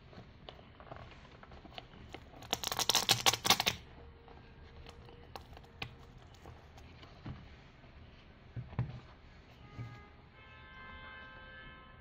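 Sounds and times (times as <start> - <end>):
hook-and-loop strap ripping open: 2.5 - 3.8
soft handling taps and rustles: 4.8 - 10.0.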